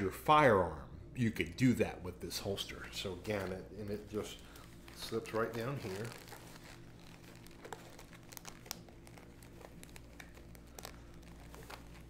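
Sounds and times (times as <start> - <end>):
clothing rustling and crinkling: 3.1 - 12.0.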